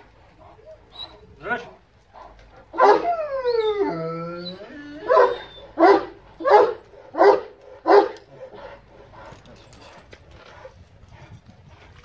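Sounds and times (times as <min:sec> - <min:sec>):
dog whining: 0:00.6 - 0:01.3, 0:02.8 - 0:05.9
dog barking: 0:02.8 - 0:03.1, 0:05.1 - 0:08.6.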